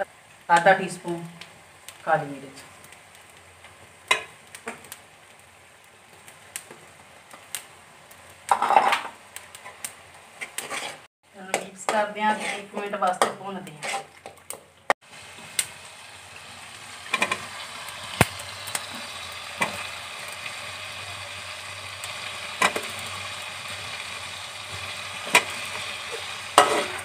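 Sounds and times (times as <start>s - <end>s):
potatoes frying in oil: 0.0s - 27.0s
metal spatula stirring: 10.4s - 14.4s, 25.2s - 27.0s.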